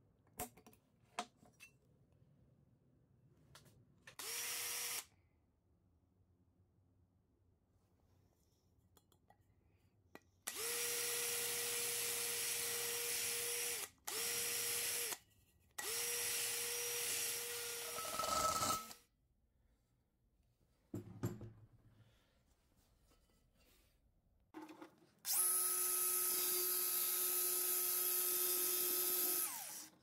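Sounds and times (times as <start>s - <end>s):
drill cutting into metal: 4.2s - 5.1s, 10.5s - 15.2s, 15.8s - 19.0s, 25.3s - 30.0s.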